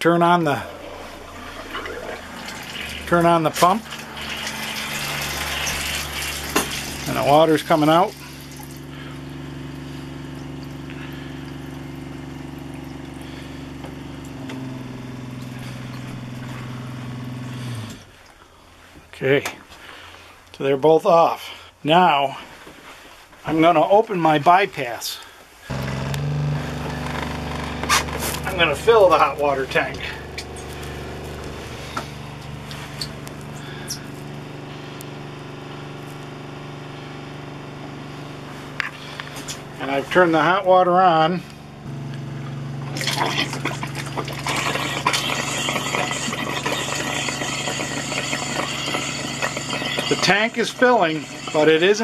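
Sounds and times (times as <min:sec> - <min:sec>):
water pump humming: 0:00.0 - 0:18.9, 0:25.6 - 0:52.0
tap water pouring into sink: 0:00.6 - 0:08.8, 0:42.9 - 0:52.0.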